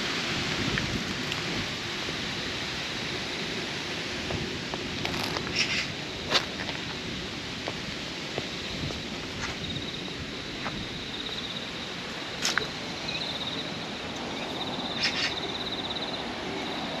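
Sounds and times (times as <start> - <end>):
outdoor background noise: 0.0 - 17.0
insect trilling: 13.0 - 17.0.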